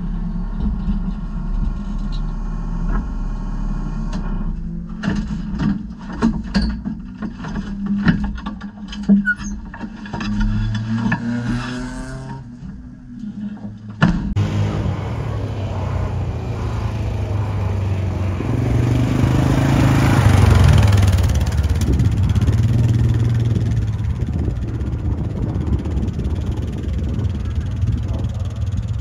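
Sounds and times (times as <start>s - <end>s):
diesel engine under load: 0.0s - 8.2s, 14.3s - 29.0s.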